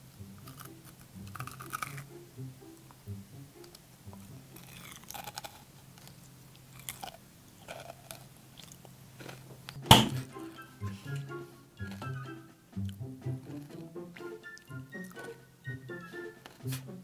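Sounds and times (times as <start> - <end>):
crunchy candy chewing: 0.4 - 2.1, 4.1 - 9.8, 12.8 - 17.0
plastic toy hammer smack: 9.8 - 10.2.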